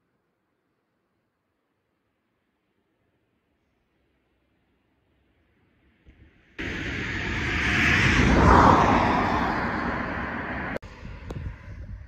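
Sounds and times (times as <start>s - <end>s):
outdoor background noise: 0.0s - 12.0s
road vehicle passing by: 6.6s - 11.8s.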